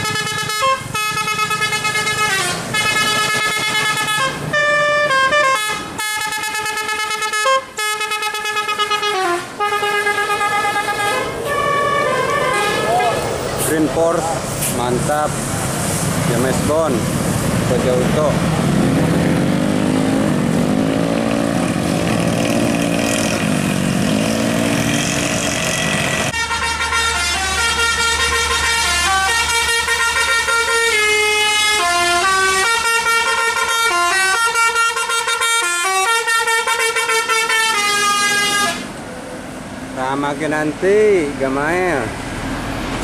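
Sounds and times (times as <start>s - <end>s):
musical air horn tune: 0.0s - 13.8s, 26.3s - 38.9s.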